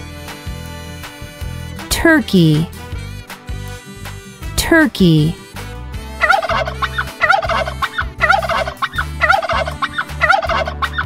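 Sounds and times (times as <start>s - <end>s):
turkey gobbling: 6.2s - 11.0s.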